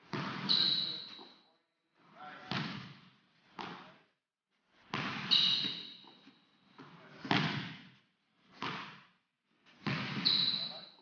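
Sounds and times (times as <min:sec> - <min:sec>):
basketball bouncing on wooden floor: 0:02.5 - 0:03.8, 0:04.9 - 0:06.1, 0:07.3 - 0:07.8, 0:09.8 - 0:10.3.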